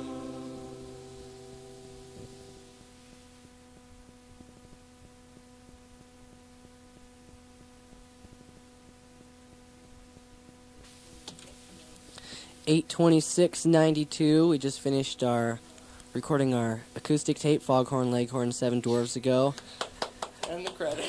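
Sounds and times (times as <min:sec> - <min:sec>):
acoustic song: 0:00.0 - 0:02.8
electrical hum and hiss: 0:00.0 - 0:21.0.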